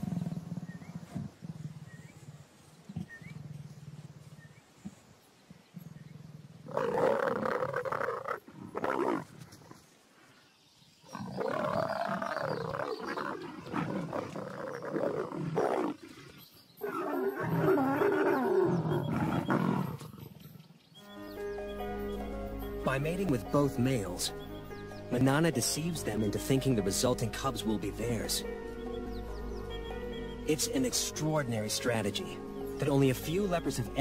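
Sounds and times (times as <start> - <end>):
leopards growling: 0.0 - 5.0, 5.7 - 9.9, 11.0 - 20.6.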